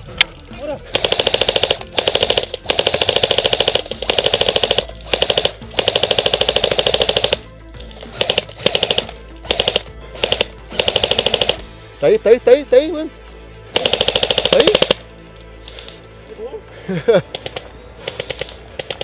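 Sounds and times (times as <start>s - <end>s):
airsoft guns firing bursts: 0.9s - 11.6s, 13.7s - 15.0s, 17.3s - 19.0s.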